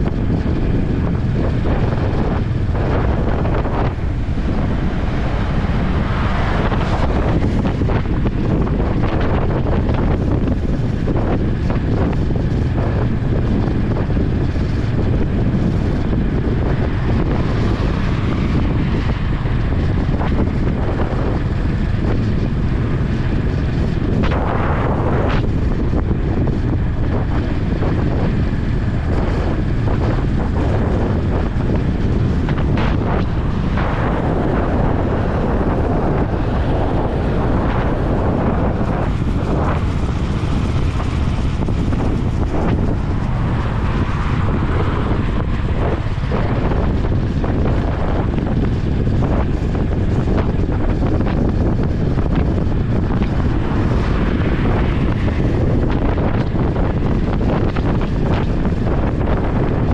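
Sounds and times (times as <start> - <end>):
motorcycle engine running: 0.0 - 59.9
wind rush on microphone: 0.0 - 59.9.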